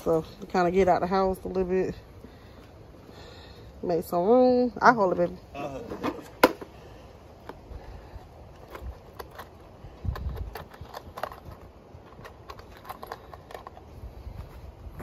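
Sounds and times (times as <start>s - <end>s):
plastic items clicking and knocking: 8.6s - 13.9s.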